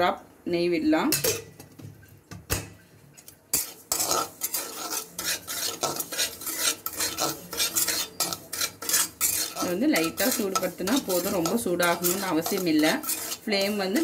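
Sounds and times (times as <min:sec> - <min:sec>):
spatula scraping metal pan: 0:03.5 - 0:14.0.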